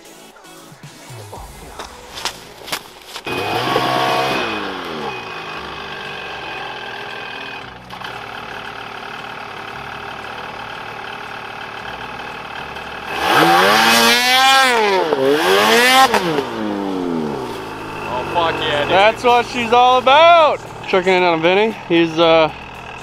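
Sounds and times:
snowmobile engine revving: 1.1 - 23.0.

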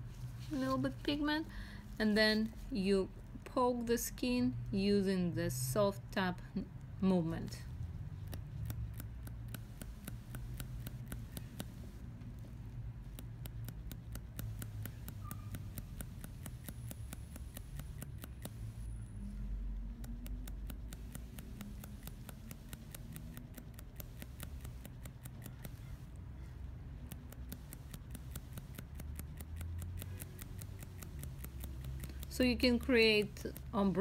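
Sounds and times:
rapid needle tool clicking: 6.2 - 34.0.

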